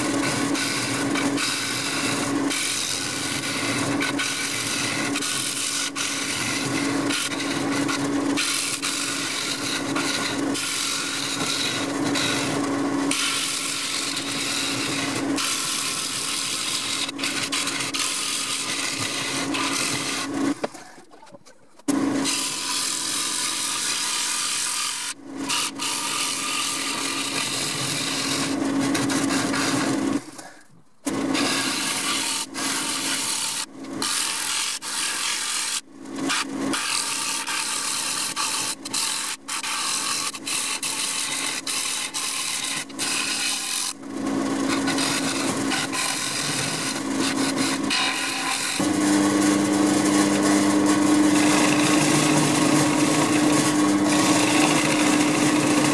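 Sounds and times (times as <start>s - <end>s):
lathe motor humming: 0.0s - 20.7s, 40.1s - 55.9s
gouge scraping spinning wood: 0.0s - 20.9s, 21.9s - 30.5s, 31.1s - 55.9s.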